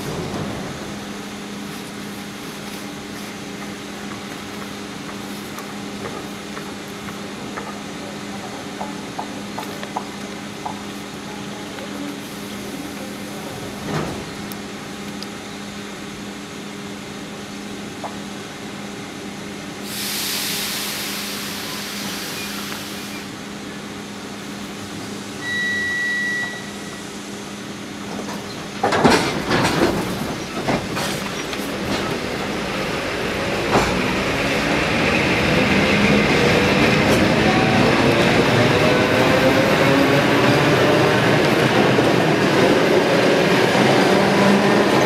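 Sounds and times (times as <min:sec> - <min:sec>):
train clanks: 0:00.0 - 0:15.2, 0:28.0 - 0:45.0
standing train hum: 0:00.0 - 0:45.0
air hiss: 0:19.8 - 0:23.3
short high beep: 0:25.4 - 0:27.1.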